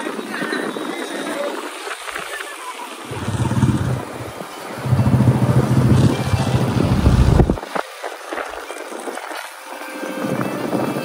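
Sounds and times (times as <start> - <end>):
motorcycle engine rumble: 3.1 - 7.6.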